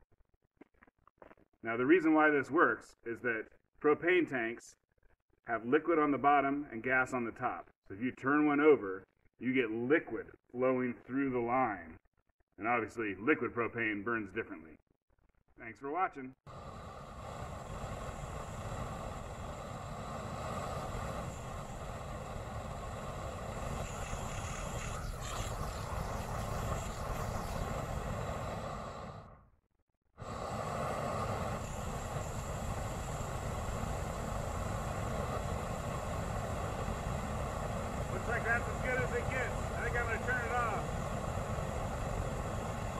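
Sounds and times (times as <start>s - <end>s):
flamethrower flame rushing: 16.5s - 29.5s, 30.2s - 42.9s.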